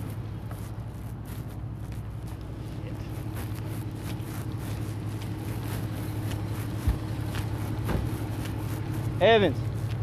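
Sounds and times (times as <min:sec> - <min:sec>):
vehicle engines idling: 0:00.0 - 0:10.0
low thump: 0:07.8 - 0:08.2.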